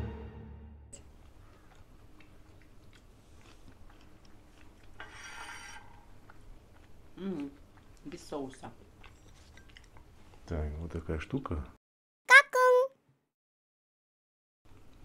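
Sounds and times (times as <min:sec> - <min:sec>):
person chewing food: 0:01.0 - 0:10.5.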